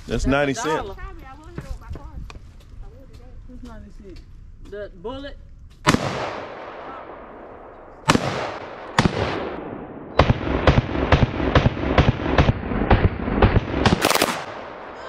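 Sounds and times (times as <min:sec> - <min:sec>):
rifle shots: 0:05.8 - 0:15.0.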